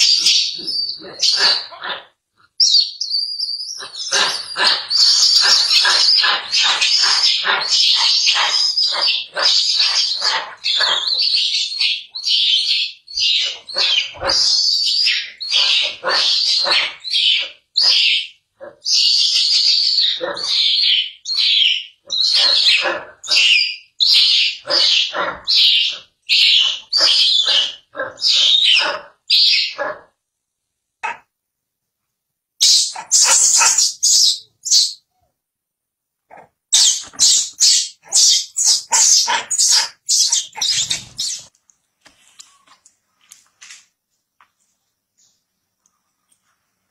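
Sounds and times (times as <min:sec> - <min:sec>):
baby monkey shrieking: 0:00.0 - 0:29.8, 0:32.6 - 0:35.0, 0:36.3 - 0:41.5.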